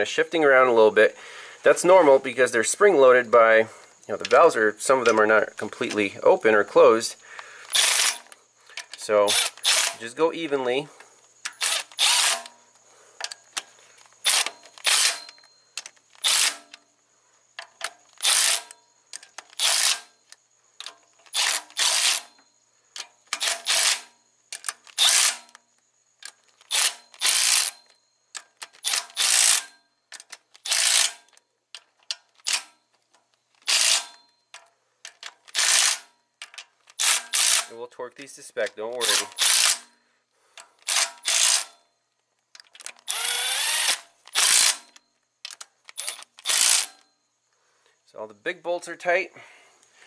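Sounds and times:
ratchet wrench clicking: 7.6s - 10.1s, 11.3s - 12.6s, 13.2s - 16.8s, 17.6s - 22.4s, 23.0s - 25.6s, 26.2s - 37.7s, 39.0s - 39.9s, 40.6s - 41.8s, 42.5s - 47.1s.

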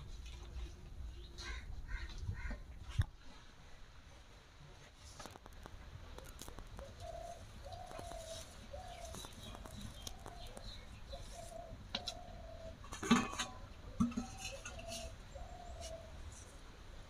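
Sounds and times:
bird calling: 6.2s - 13.0s, 13.8s - 16.5s.

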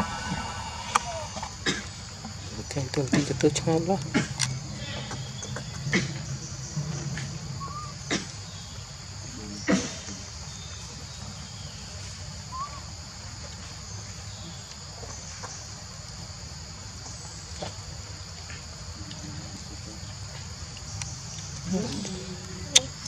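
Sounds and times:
insects chorus: 0.0s - 23.0s.

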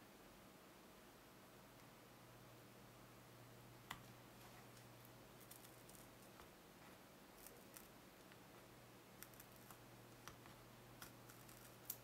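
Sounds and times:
faint ticks and crinkles of foil tape: 4.7s - 6.4s, 7.4s - 8.4s, 9.2s - 10.4s, 11.0s - 12.0s.

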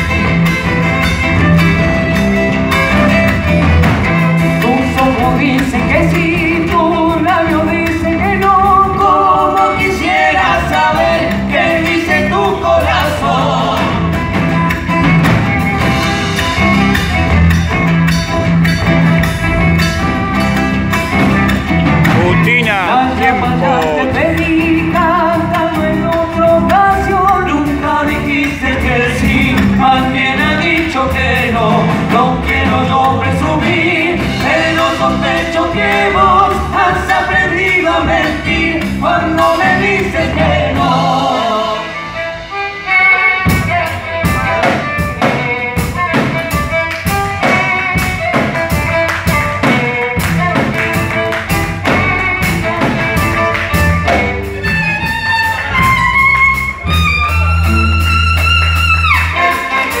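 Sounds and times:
violin: 0.0s - 5.6s, 41.4s - 60.0s
acoustic guitar: 0.0s - 60.0s
drum kit beat: 0.0s - 60.0s
electric bass: 0.0s - 60.0s
person singing: 22.0s - 42.3s.

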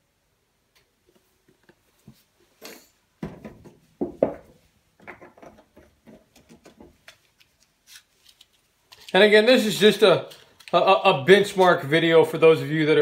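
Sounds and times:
plastic bottle knocking on countertop: 3.2s - 5.2s
matchbox clicks and rustles: 7.1s - 10.9s.

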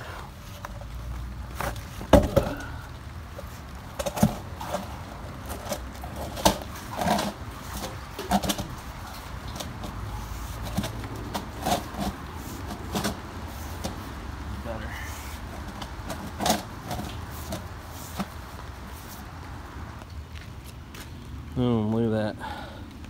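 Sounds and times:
hands knocking and scraping on ground: 1.6s - 2.8s.

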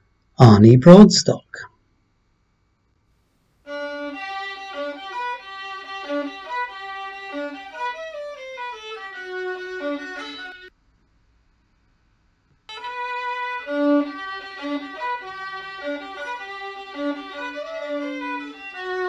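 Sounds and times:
solo violin melody: 3.7s - 10.7s, 12.7s - 19.0s.

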